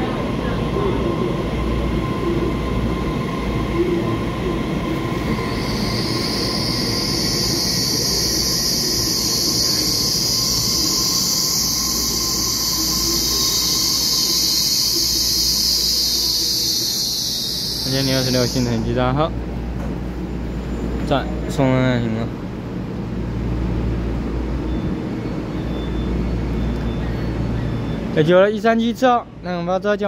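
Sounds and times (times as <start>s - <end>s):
train wheels rumbling on rail: 0.0s - 28.1s
high-pitched squeal: 2.0s - 19.1s.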